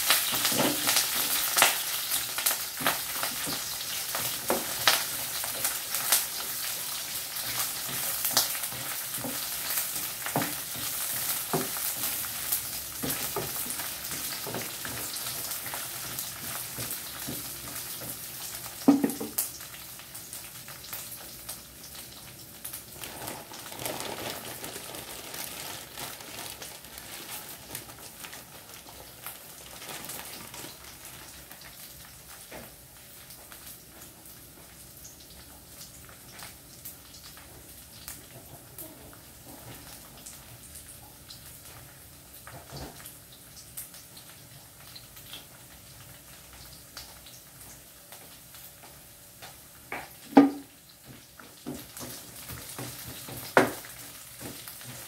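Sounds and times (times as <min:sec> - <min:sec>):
food sizzling in a frying pan: 0:00.0 - 0:55.0.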